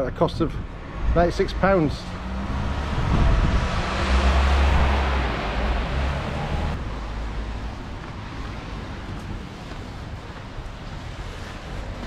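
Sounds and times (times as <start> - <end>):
wind rumble on microphone: 0.0 - 12.0
car passing on wet road: 1.8 - 8.8.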